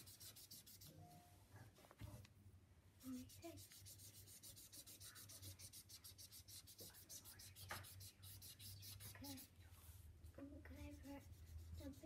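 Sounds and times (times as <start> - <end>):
marker scratching on paper: 0.0 - 0.9, 3.0 - 9.5, 10.7 - 12.0.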